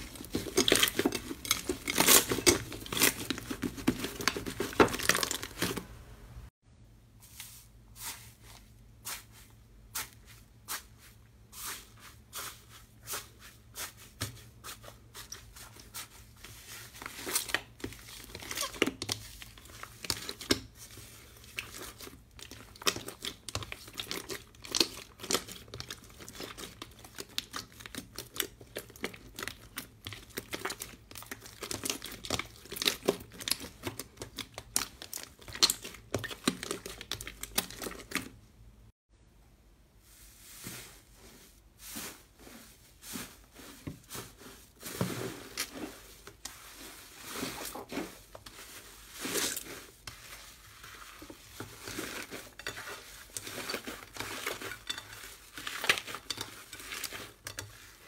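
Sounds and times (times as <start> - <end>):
slime crackling and popping: 21.5 - 38.2.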